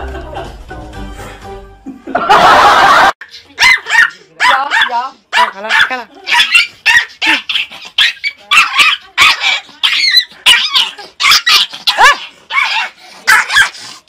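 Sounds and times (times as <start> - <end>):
puppy yapping: 3.6 - 13.9.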